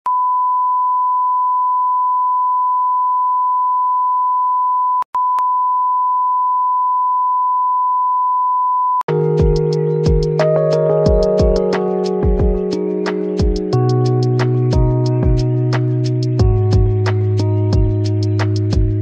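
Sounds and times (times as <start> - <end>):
background music: 9.1 - 19.0.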